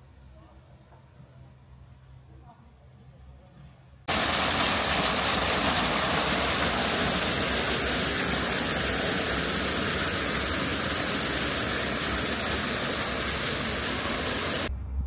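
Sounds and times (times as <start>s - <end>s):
water rushing: 4.1s - 14.7s.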